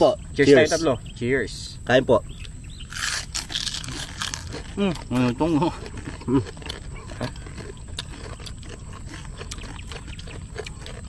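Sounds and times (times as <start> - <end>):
crunchy skin being chewed: 2.8 - 11.0.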